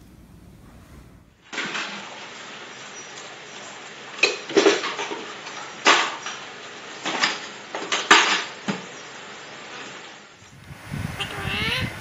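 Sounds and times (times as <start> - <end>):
metal cups clattering on tiled floor: 4.2 - 6.4.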